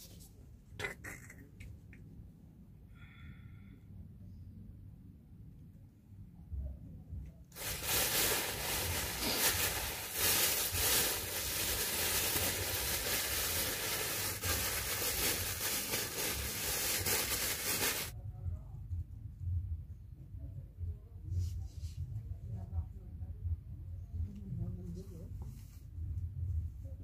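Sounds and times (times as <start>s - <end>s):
cloth rubbing on microphone: 7.6s - 18.1s, 24.8s - 26.1s.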